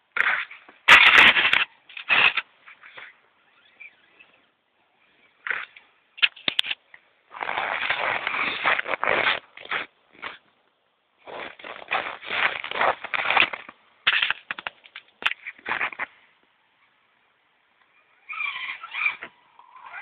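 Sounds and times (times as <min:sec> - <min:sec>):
toy car motor whirring: 0:18.1 - 0:20.0.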